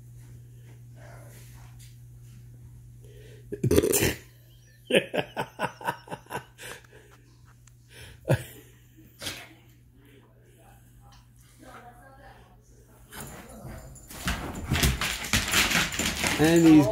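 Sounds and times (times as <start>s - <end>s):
person laughing hard: 4.8s - 6.9s.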